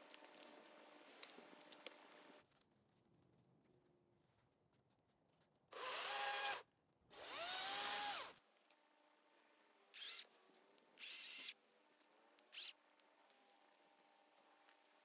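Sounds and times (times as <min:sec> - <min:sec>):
electric chainsaw motor whining: 0:05.8 - 0:06.6, 0:07.2 - 0:08.4, 0:10.0 - 0:10.3, 0:11.0 - 0:11.6.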